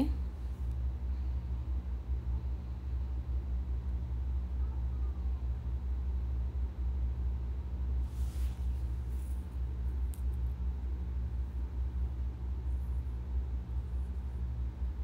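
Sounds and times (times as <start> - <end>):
brief hiss: 8.0 - 8.9.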